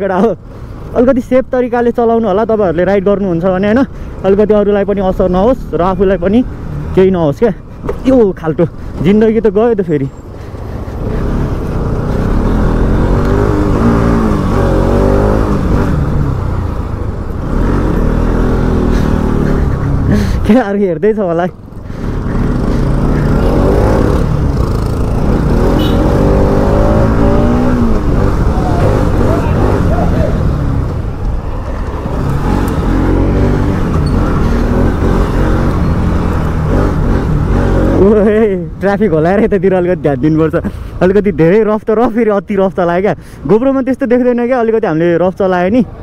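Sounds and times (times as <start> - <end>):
motorcycle engine revving: 10.4 - 20.6, 21.9 - 38.4
motorcycle engine running: 21.9 - 31.0.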